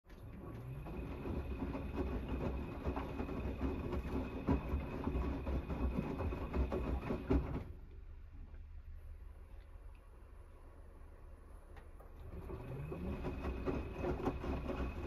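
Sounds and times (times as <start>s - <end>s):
washing machine drum tumbling: 0.2s - 7.8s, 12.2s - 15.0s
faint hum: 7.6s - 13.4s.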